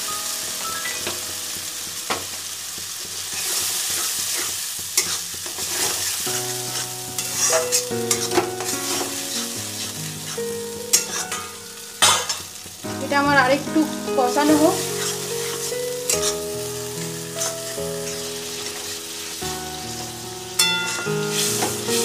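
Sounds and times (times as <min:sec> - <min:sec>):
paste sizzling in hot oil: 0:00.0 - 0:22.0
metal spatula scraping pan: 0:03.4 - 0:06.0, 0:06.7 - 0:12.4, 0:15.0 - 0:16.4, 0:17.4 - 0:18.2, 0:20.6 - 0:22.0.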